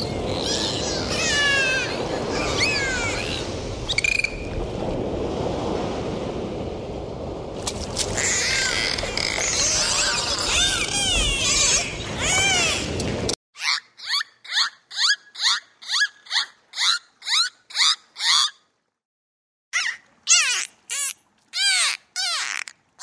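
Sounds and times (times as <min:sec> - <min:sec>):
dolphins whistling underwater: 0:00.4 - 0:04.6.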